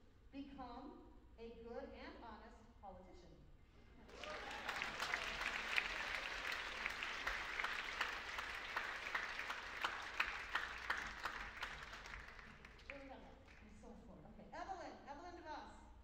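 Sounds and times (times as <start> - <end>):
audience applauding: 4.1 - 13.6.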